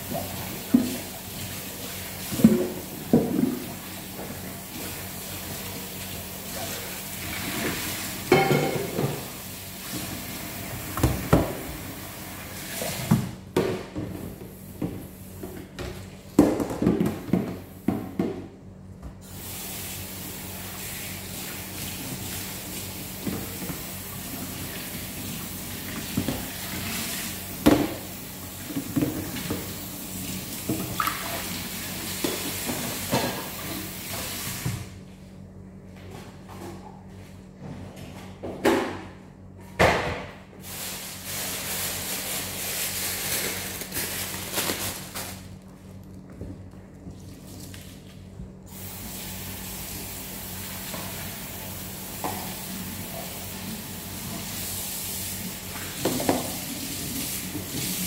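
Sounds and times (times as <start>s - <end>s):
tap water running into sink: 20.6s - 34.8s.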